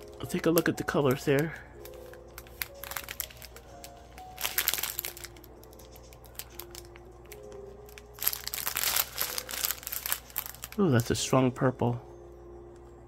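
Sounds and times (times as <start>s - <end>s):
plastic bags crinkling: 0.0s - 11.2s
soft background music: 0.0s - 13.0s.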